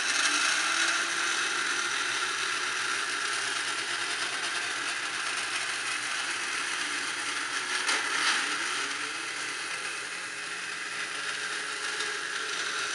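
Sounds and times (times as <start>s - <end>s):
electric motor gear whir: 0.0s - 12.9s.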